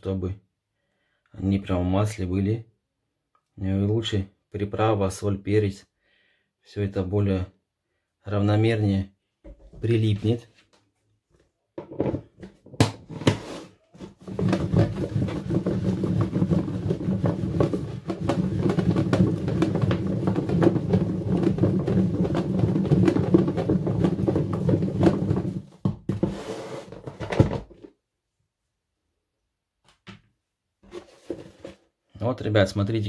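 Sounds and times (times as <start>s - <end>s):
mushrooms rattling in shaken container: 14.2s - 25.7s.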